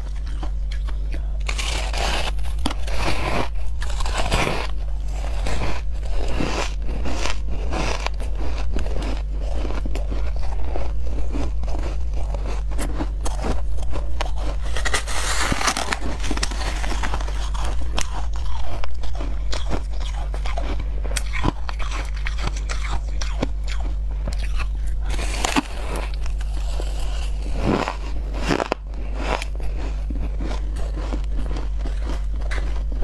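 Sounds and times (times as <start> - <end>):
crunching and chewing ice: 0.0 - 33.0
steady low hum: 0.0 - 33.0.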